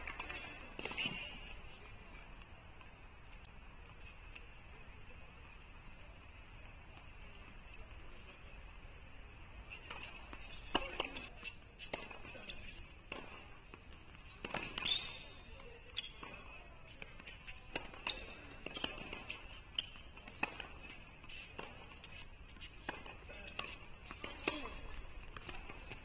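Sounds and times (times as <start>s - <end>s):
tennis balls struck and bouncing: 0.0s - 1.6s, 9.8s - 26.0s
shoes on tennis court: 0.0s - 26.0s.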